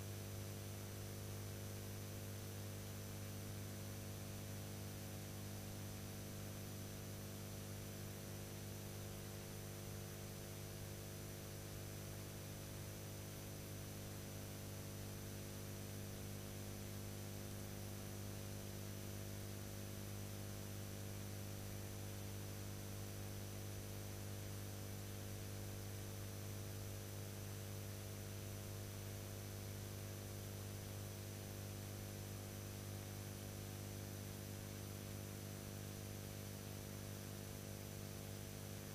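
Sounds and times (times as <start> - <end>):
electrical mains hum: 0.0 - 1.0.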